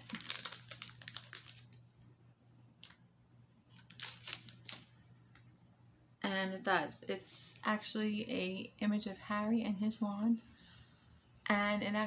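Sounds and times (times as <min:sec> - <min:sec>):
plastic wrapping crinkling: 0:00.0 - 0:02.1, 0:02.8 - 0:03.0, 0:03.7 - 0:05.4
faint low hum: 0:00.0 - 0:12.0.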